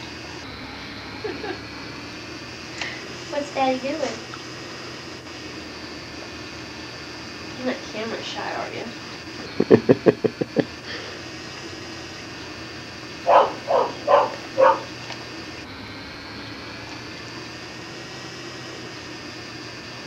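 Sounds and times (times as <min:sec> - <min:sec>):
tape hiss: 0:00.0 - 0:20.0
dog barking: 0:13.2 - 0:15.0.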